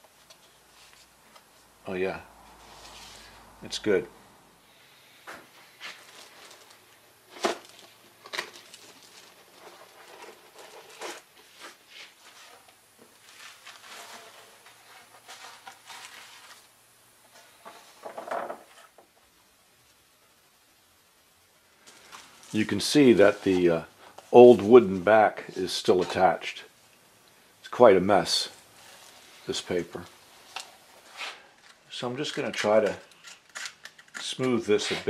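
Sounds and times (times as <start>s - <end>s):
paper backing rustling: 5.7s - 16.7s, 21.9s - 26.3s, 28.8s - 35.0s.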